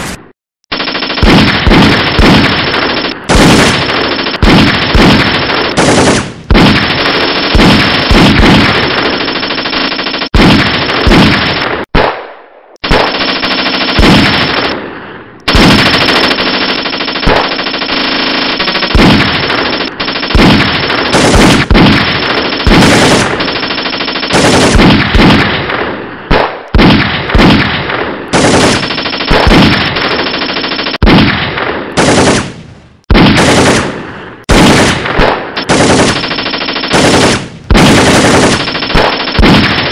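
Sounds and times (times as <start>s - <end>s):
automatic gunfire bursts: 0.7s - 12.2s, 12.8s - 14.8s, 15.5s - 39.9s.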